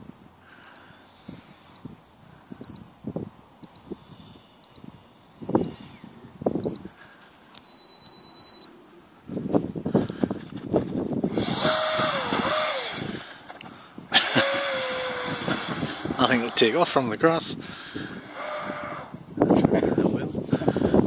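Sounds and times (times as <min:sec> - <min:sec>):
electric ducted fan whine: 0:00.0 - 0:21.0
long steady beep: 0:00.6 - 0:00.8, 0:01.6 - 0:01.8, 0:02.6 - 0:02.8, 0:03.6 - 0:03.8, 0:04.6 - 0:04.8, 0:05.6 - 0:05.9, 0:06.6 - 0:06.8, 0:07.6 - 0:08.7
short high electronic beeps: 0:07.6 - 0:08.7.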